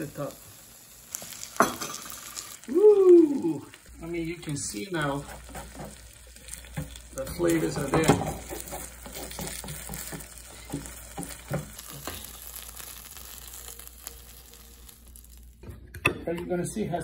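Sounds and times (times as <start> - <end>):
pizza sizzling in a frying pan: 0.0 - 15.7
spatula scraping a pan: 4.7 - 13.9.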